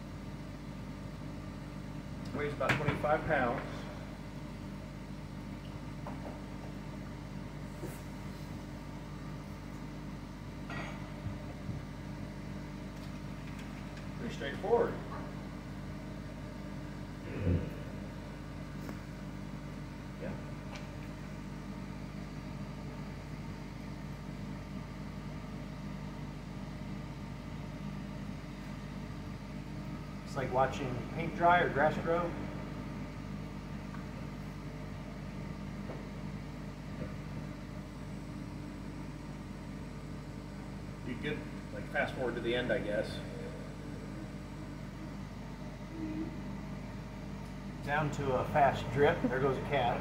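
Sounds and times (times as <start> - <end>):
spin dryer motor humming: 0.0 - 50.0.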